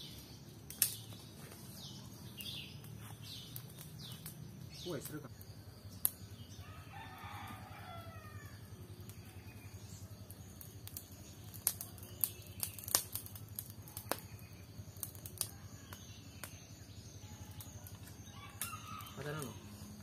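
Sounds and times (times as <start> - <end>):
sharp clicks and snaps: 0.7 - 1.1, 10.6 - 14.3
rooster crowing: 6.6 - 8.8, 18.3 - 19.8.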